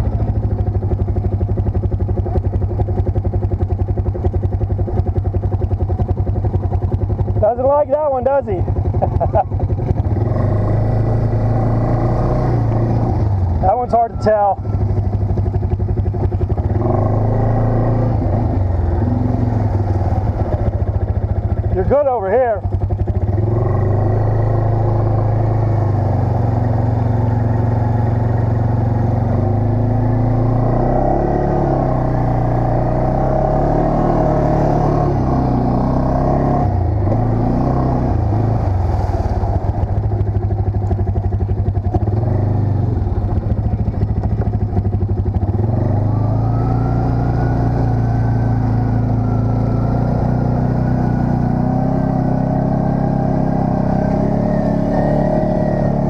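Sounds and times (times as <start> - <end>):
quad bike engine revving: 0.0 - 56.0.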